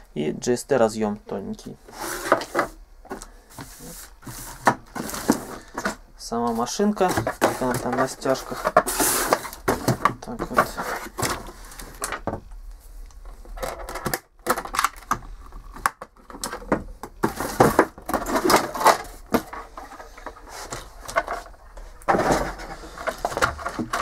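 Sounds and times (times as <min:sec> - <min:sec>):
cardboard box scraping and rustling: 0:03.6 - 0:06.0, 0:06.6 - 0:09.9.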